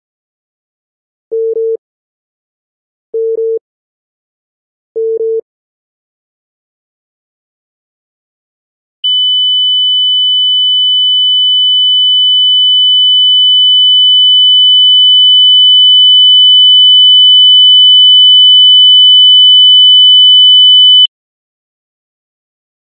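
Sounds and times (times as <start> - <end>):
high steady telephone tone: 1.3 - 1.8, 3.2 - 3.6, 5.0 - 5.4, 9.1 - 11.7.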